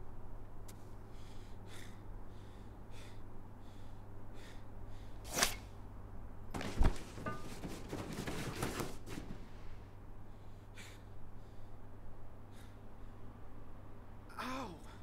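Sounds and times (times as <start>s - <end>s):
sharp scuff: 5.3s - 5.7s.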